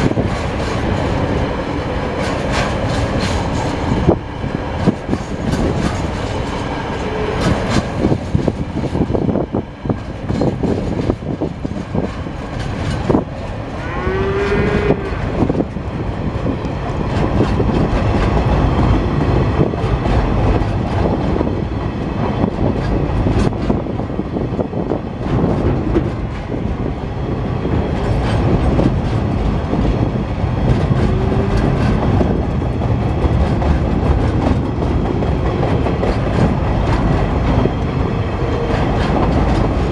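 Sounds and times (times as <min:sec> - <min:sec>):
train wheels rumbling on rails: 0:00.0 - 0:39.9
wheels clicking over track: 0:09.9 - 0:24.0, 0:27.7 - 0:39.9.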